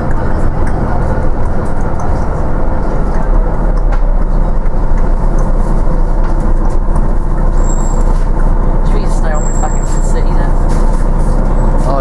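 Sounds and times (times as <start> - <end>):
bus diesel engine running: 0.0 - 12.0
low road rumble: 0.0 - 12.0.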